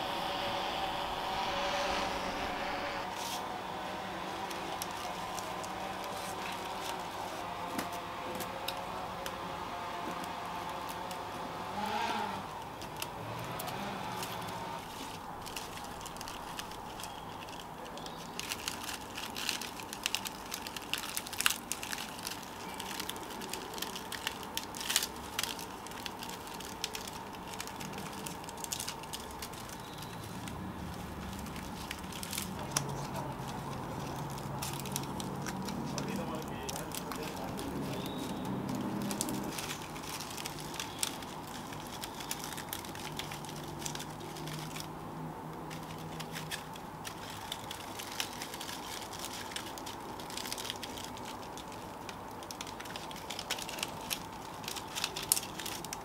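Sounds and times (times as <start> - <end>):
steady low hum: 0.0 - 17.9
dry palm leaves rustling: 0.0 - 56.0.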